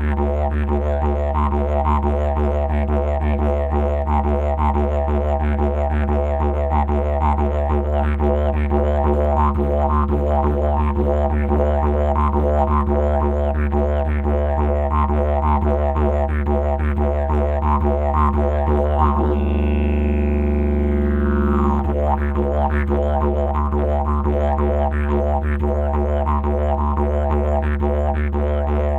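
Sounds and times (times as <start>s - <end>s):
didgeridoo drone: 0.0s - 28.9s.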